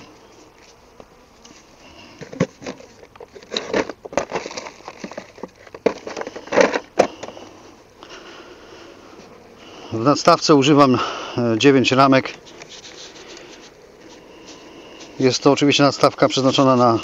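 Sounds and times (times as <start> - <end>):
gear rustling and scuffing: 12.2 - 17.0.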